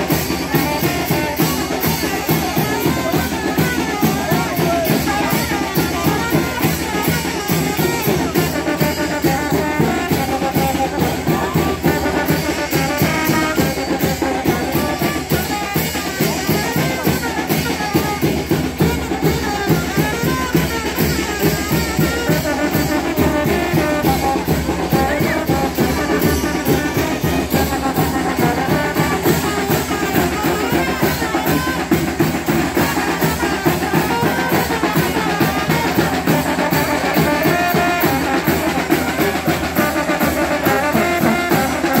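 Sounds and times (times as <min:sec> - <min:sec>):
brass band playing dance tune: 0:00.0 - 0:42.0
drums steady beat: 0:00.0 - 0:42.0.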